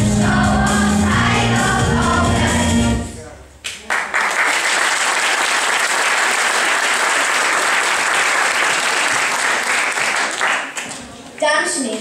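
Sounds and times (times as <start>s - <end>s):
audience applauding: 3.7s - 11.1s.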